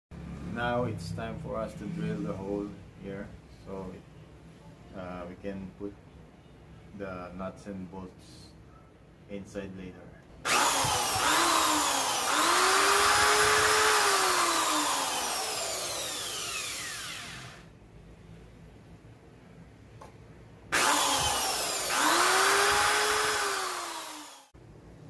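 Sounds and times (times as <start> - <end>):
electric drill whining: 10.5 - 17.7, 20.8 - 24.6.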